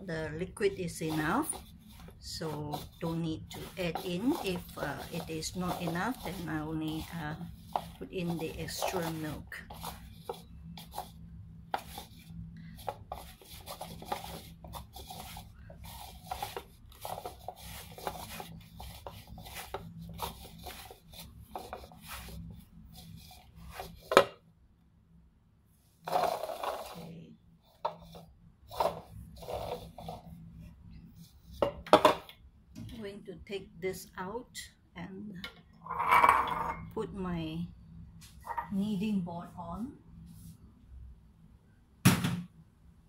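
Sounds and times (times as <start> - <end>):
hands kneading bread dough: 0.0 - 24.2, 27.8 - 31.8.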